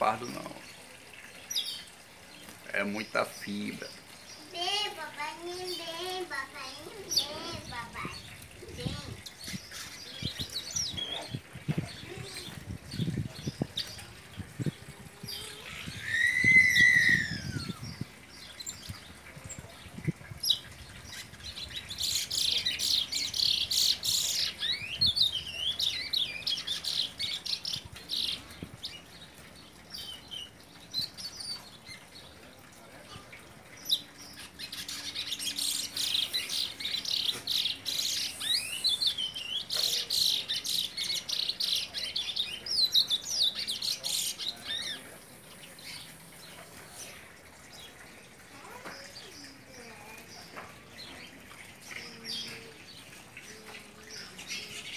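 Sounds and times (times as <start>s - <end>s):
finch twittering song: 6.6s - 32.3s, 33.7s - 54.9s
loud arching bird whistle: 16.0s - 17.8s.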